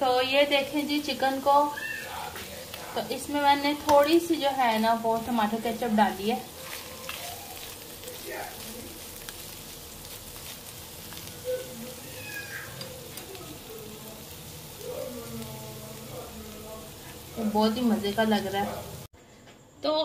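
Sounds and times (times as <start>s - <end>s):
chicken sizzling in oil: 0.0s - 19.1s.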